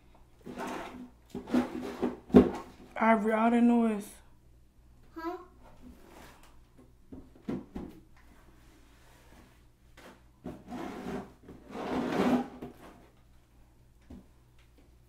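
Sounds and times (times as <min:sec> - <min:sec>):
rubbing and scraping handling noise: 0:00.4 - 0:03.0, 0:05.6 - 0:06.7, 0:08.2 - 0:13.4.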